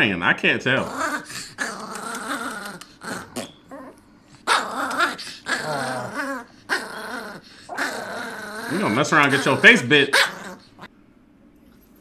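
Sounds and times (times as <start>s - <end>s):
dogs growling: 0.7s - 10.9s
dogs barking: 4.5s - 6.8s, 8.6s - 10.8s.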